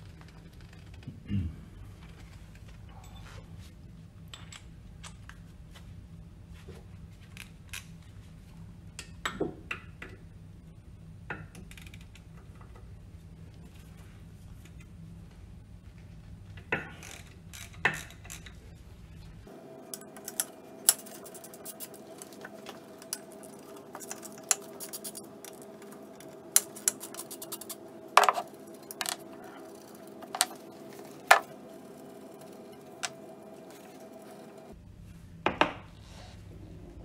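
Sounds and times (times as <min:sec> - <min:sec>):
tools and screws clinking: 0:20.0 - 0:25.7.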